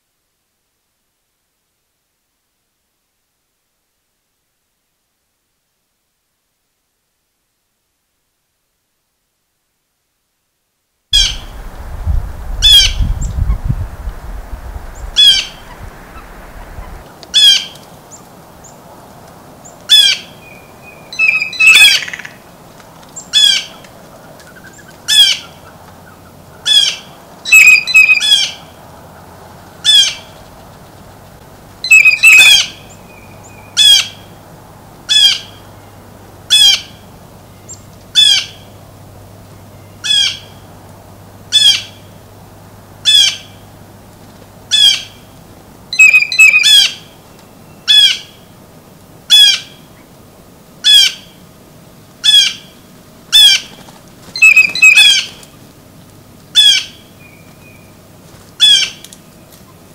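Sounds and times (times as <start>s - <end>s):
blue jay squawking: 11.2s - 11.8s, 12.5s - 17.8s, 19.9s - 22.4s, 23.3s - 30.4s, 31.8s - 34.3s, 35.1s - 35.7s, 36.5s - 37.1s, 38.1s - 38.7s, 40.0s - 40.7s, 41.5s - 42.1s, 43.0s - 43.6s, 44.7s - 45.3s, 45.9s - 47.2s, 47.8s - 48.4s, 49.3s - 49.8s, 50.8s - 51.4s, 52.2s - 55.4s, 56.5s - 57.1s, 58.6s - 59.0s.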